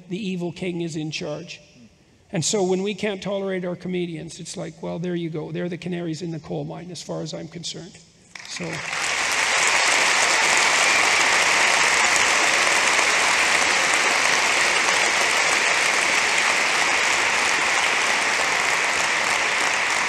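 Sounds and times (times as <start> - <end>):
audience applauding: 8.4 - 20.0.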